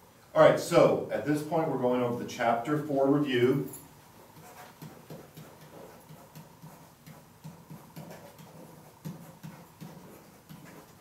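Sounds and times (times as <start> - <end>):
pen tapping on whiteboard: 4.4 - 11.0.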